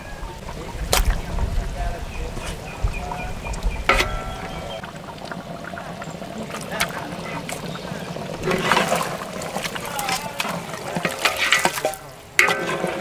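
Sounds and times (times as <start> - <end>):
ladle knocking pot: 3.8 - 4.9, 8.4 - 13.0
meat splashing into gravy: 3.9 - 13.0.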